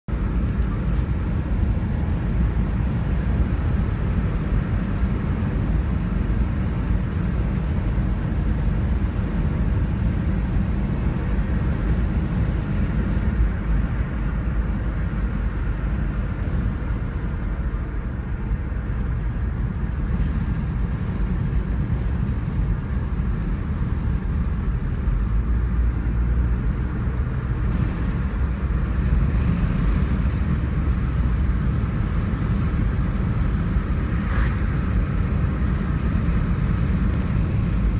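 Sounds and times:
car road and engine rumble: 0.0 - 37.9.

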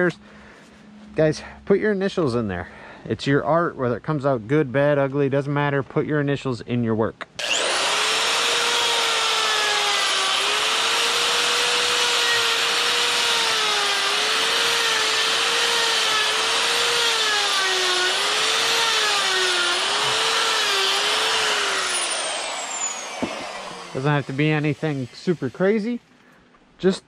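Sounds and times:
rotary tool whining: 7.4 - 26.2.

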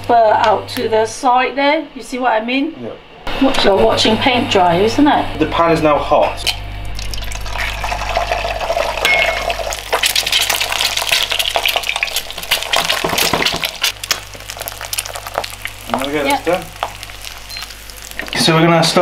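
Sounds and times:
egg sizzling in hot oil: 7.0 - 18.6.

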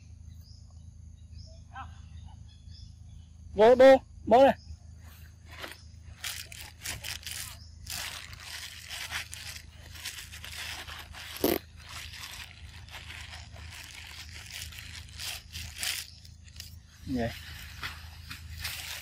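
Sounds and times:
rustling and scraping: 5.0 - 19.0.

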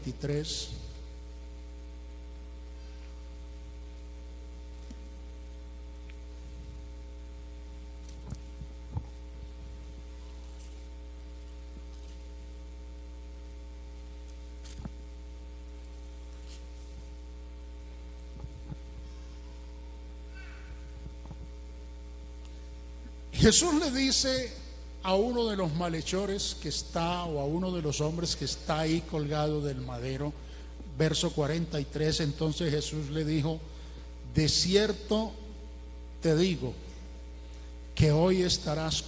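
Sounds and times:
electrical mains hum: 0.0 - 39.0
pages turning near microphone: 14.2 - 15.0, 16.3 - 17.1.

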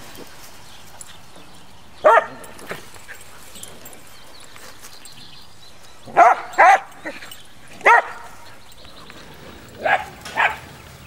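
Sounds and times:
puppy barking: 2.0 - 2.4, 6.1 - 7.2, 7.8 - 8.4, 9.8 - 10.7.

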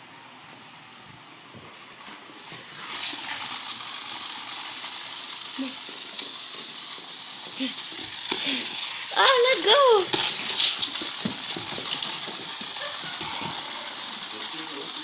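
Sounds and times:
dogs scuffling and rustling: 9.3 - 13.9.

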